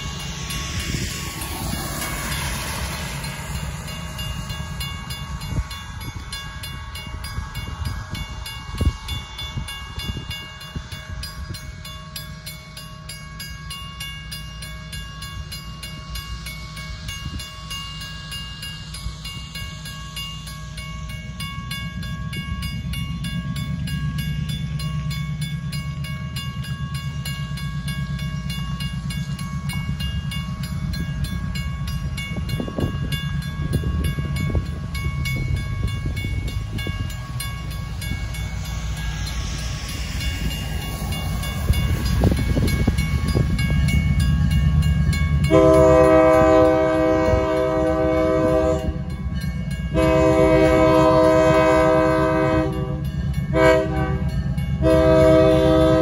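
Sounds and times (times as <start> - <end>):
diesel locomotive rumble: 0.0 - 56.0
railroad crossing bell ringing: 0.0 - 56.0
locomotive horn: 45.5 - 49.1, 49.9 - 56.0.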